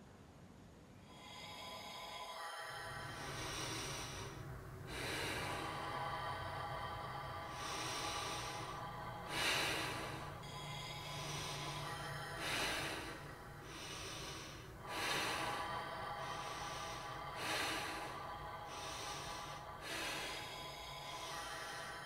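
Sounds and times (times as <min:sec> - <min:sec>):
faint steady drone: 0:00.0 - 0:22.0
person breathing heavily: 0:01.0 - 0:22.0.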